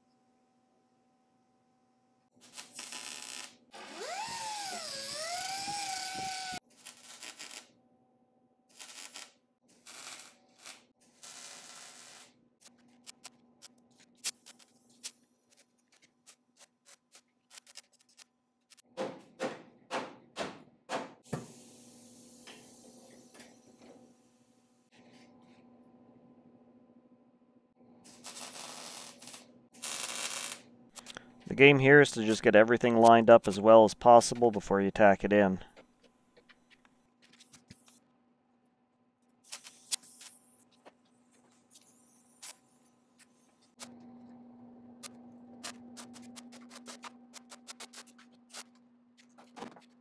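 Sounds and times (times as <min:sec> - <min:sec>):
welder crackling: 0:02.4 - 0:07.7, 0:08.7 - 0:13.3, 0:28.1 - 0:34.6
power tool motor spinning: 0:03.8 - 0:06.6.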